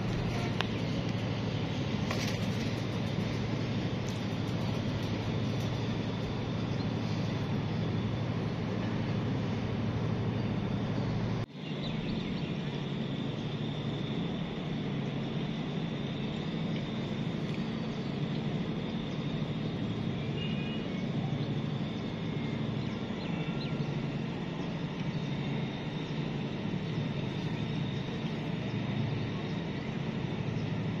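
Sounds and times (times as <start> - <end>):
low rumbling background noise: 0.0 - 31.0.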